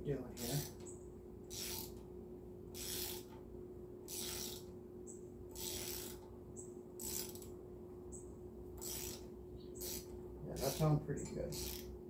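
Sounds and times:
hand ratchet clicking: 1.5s - 2.0s, 2.8s - 3.4s, 4.1s - 4.7s, 5.5s - 6.3s, 7.0s - 7.5s, 8.8s - 9.2s, 9.8s - 11.9s.

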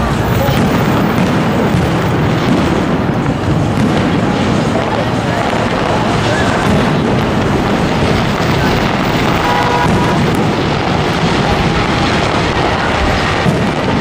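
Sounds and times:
fireworks booming: 0.0s - 14.0s.

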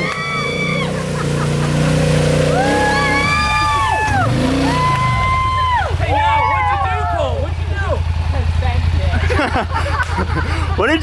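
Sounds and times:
people whooping: 0.0s - 1.5s, 2.4s - 7.5s
quad engine running under load: 0.0s - 11.0s.

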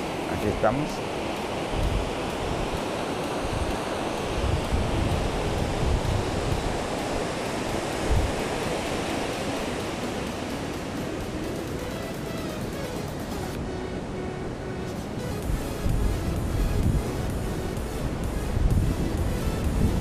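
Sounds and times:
ocean waves washing: 0.0s - 20.0s
wind rumble on microphone: 1.6s - 10.2s, 13.5s - 20.0s.

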